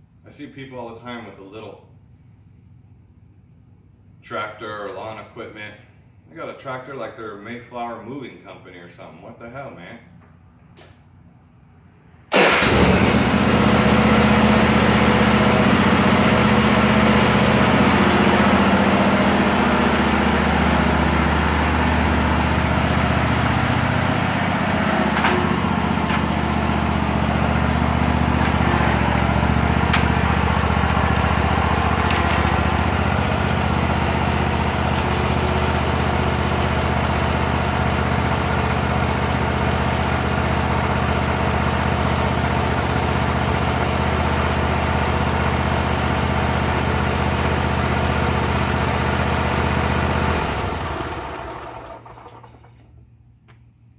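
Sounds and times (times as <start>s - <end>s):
mower engine running: 12.3s - 52.8s.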